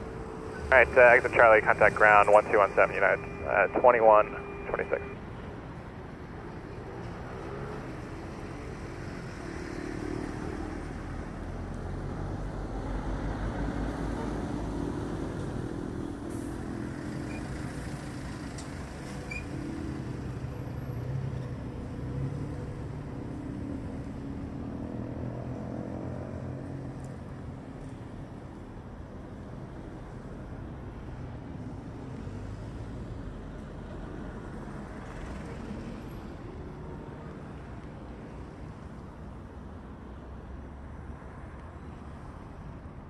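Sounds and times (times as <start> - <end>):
distant jet engines rumbling: 0.6 - 5.2.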